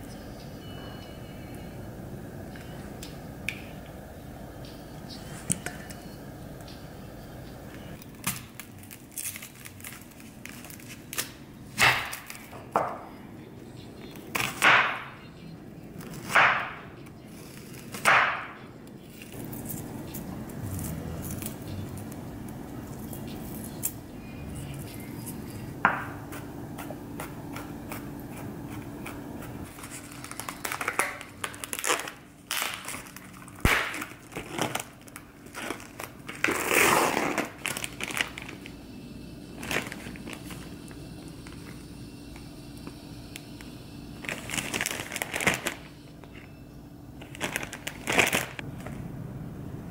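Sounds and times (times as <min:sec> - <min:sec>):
faint steady hum: 0:00.0 - 0:49.9
plastic wrap crinkling and tearing: 0:08.0 - 0:12.6, 0:29.7 - 0:38.8, 0:39.6 - 0:40.7, 0:44.2 - 0:45.9, 0:47.2 - 0:48.9.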